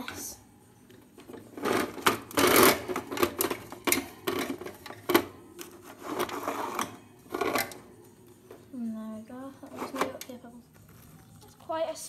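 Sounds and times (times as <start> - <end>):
hard objects clattering and rattling: 1.0 - 8.7.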